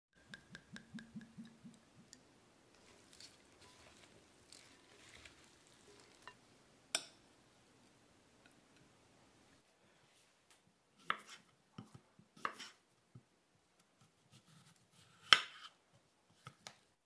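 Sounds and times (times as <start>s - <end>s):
salad leaves rustling: 2.7s - 6.5s.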